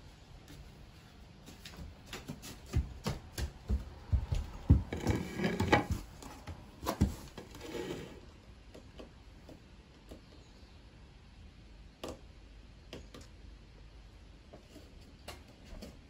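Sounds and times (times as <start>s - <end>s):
bare feet on wooden boards: 0.4s - 10.3s.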